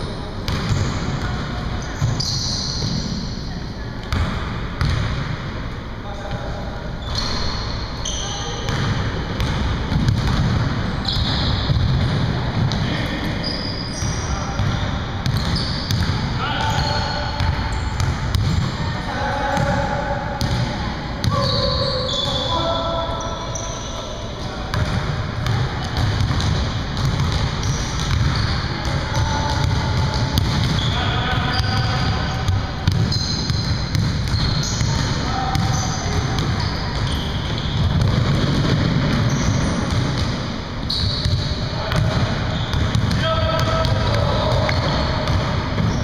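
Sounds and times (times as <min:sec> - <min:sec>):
sneaker squeaks: 0:00.0 - 0:05.0, 0:07.0 - 0:19.8, 0:21.2 - 0:46.0
basketballs bouncing on wood floor: 0:00.5 - 0:01.4, 0:04.1 - 0:05.4, 0:08.6 - 0:13.0, 0:14.0 - 0:19.8, 0:20.4 - 0:22.3, 0:24.7 - 0:46.0.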